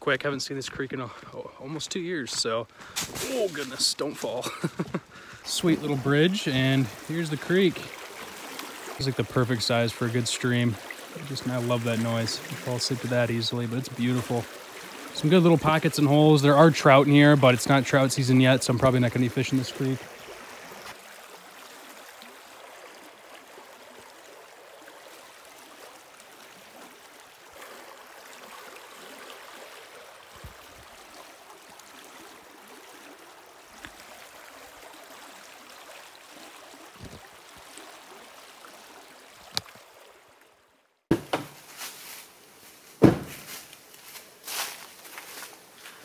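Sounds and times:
creek flowing over riffle: 0.0 - 46.0
sharp knocks and thumps: 41.1 - 41.7, 43.0 - 43.6.

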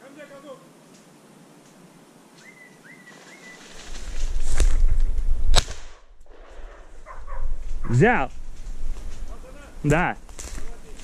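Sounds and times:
whistled bird calls: 2.4 - 3.6
pheasant wings beating: 3.0 - 6.0, 10.2 - 11.0.

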